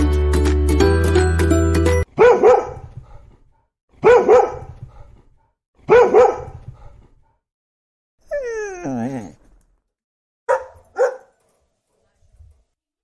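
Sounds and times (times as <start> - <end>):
dog barking: 2.1 - 3.2, 4.0 - 5.1, 5.8 - 7.0, 10.5 - 11.4.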